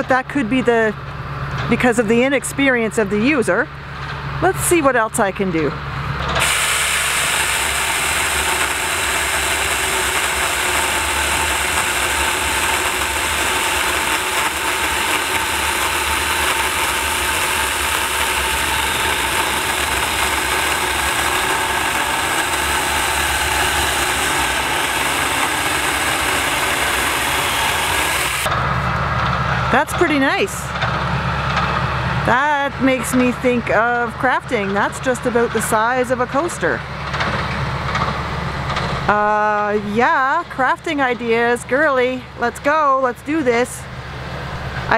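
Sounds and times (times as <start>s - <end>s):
electric chainsaw cutting log: 6.4s - 28.6s.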